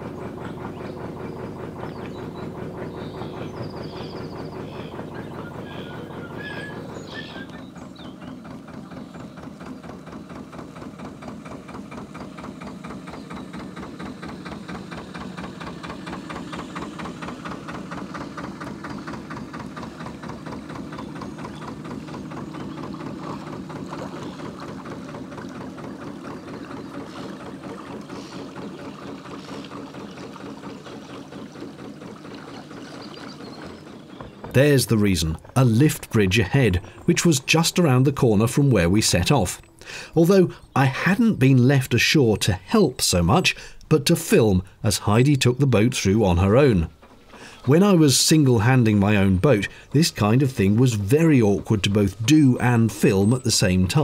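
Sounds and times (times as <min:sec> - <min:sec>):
diesel boat engine thumping: 0:00.0 - 0:54.0.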